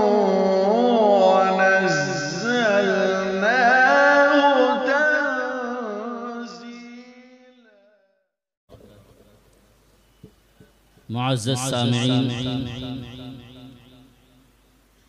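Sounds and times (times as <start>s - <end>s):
melodic recitation by single voice: 0.0s - 6.7s, 11.1s - 14.0s.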